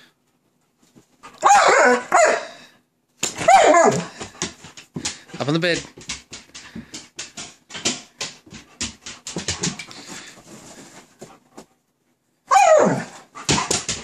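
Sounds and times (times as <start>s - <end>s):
dog whining: 1.4s - 2.7s, 3.4s - 4.2s, 12.5s - 13.5s.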